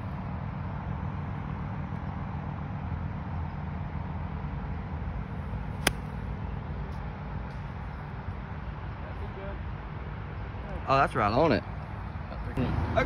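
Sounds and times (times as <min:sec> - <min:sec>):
golf club striking ball: 0:05.8 - 0:06.2.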